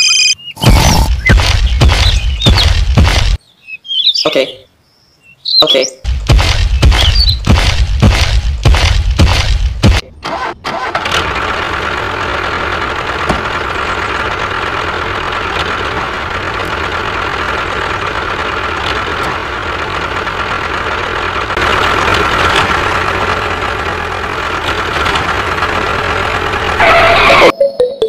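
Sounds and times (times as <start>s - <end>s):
tractor engine chugging: 6.1s - 27.5s.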